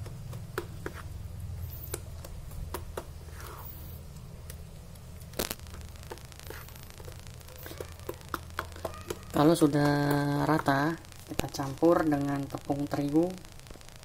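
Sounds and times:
spoon stirring wet mixture: 0.0s - 11.6s
steady low hum: 0.0s - 14.0s.

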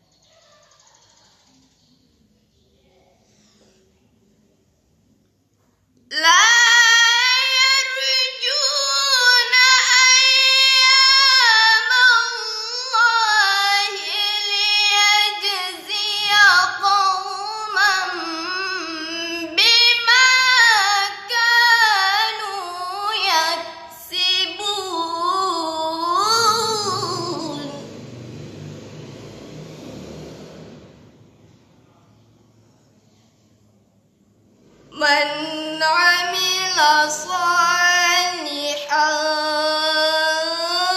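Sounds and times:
girl reciting melodically: 6.1s - 28.1s, 34.9s - 40.9s.

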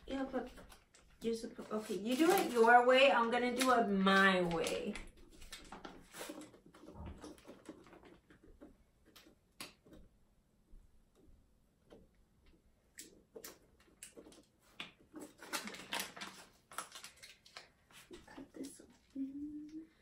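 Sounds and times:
plastic icing bags crinkling: 0.0s - 8.2s, 13.4s - 18.2s.

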